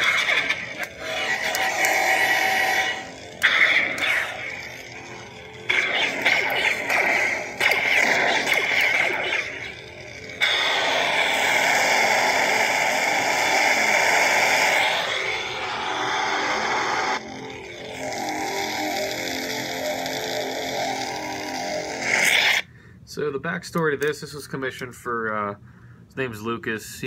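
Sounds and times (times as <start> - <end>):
lightsaber swing and clash effects: 0.0 - 10.9
hissing lightsaber effect: 0.0 - 19.3
lightsaber hum: 0.0 - 22.6.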